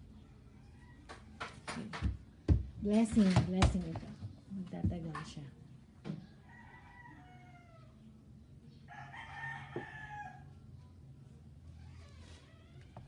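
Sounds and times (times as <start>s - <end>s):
rooster crowing faintly: 0.2s - 1.6s, 6.2s - 8.2s, 8.8s - 10.9s.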